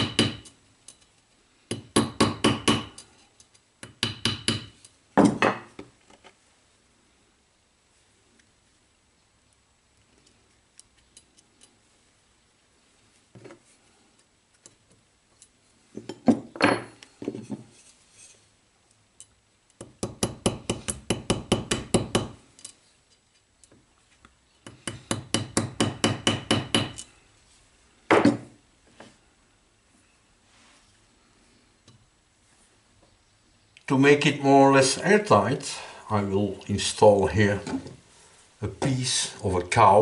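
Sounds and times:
hammer tapping on metal: 0:00.0 - 0:00.6, 0:01.7 - 0:03.0, 0:03.8 - 0:05.6, 0:19.8 - 0:22.4, 0:24.6 - 0:27.1.

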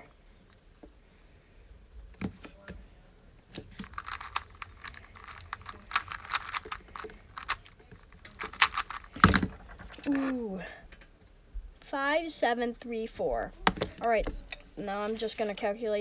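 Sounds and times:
puzzle cube clicking: 0:03.8 - 0:10.2.

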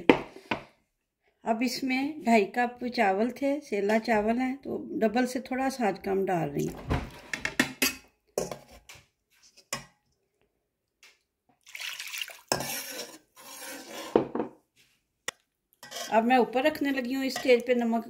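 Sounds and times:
water poured into pot: 0:11.6 - 0:13.8
spatula scraping metal pot: 0:12.5 - 0:14.5, 0:15.8 - 0:17.7.

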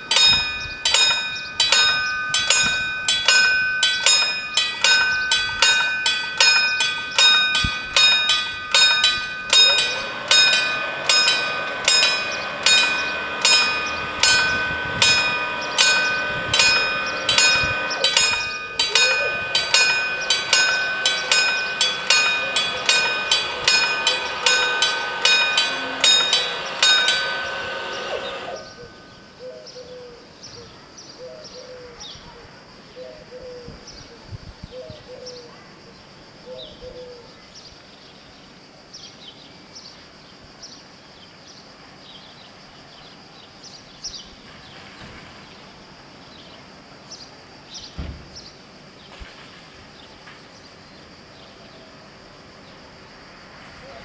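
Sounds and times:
level-crossing warning bells: 0:00.0 - 0:30.4.

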